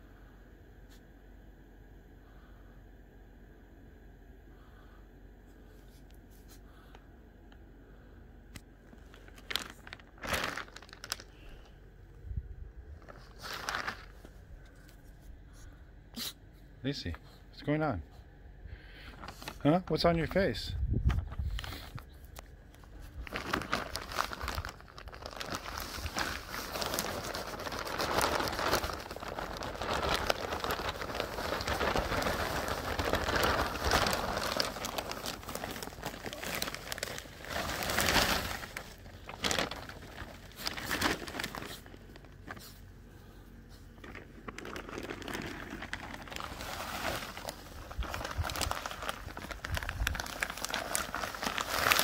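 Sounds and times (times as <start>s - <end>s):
plastic bag crinkling: 8.8s - 15.1s, 19.0s - 43.0s, 43.7s - 52.0s.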